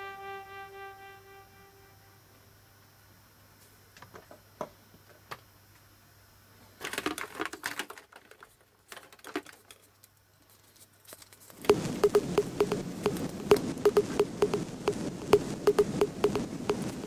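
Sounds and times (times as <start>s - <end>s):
plastic eggs clicking: 11.7s - 17.0s.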